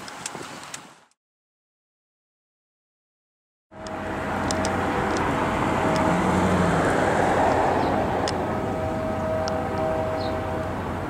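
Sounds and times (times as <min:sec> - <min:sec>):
diesel locomotive engine humming: 0:03.7 - 0:11.0.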